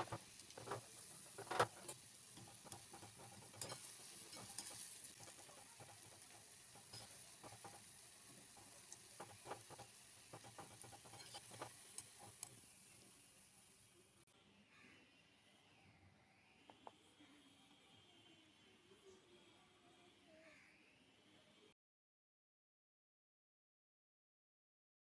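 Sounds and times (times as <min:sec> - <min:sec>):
wire skimmer stirring in pan: 0:00.0 - 0:13.5
fritters sizzling in hot oil: 0:00.0 - 0:14.2.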